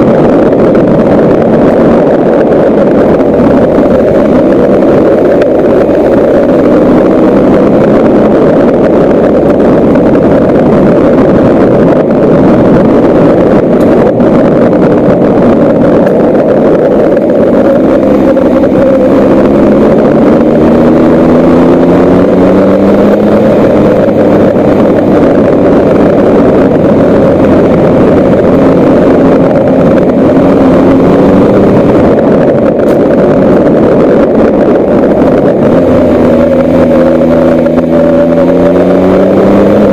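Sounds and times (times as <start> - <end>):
vehicle engine running: 0.0 - 39.9
wind noise on microphone: 0.0 - 39.9.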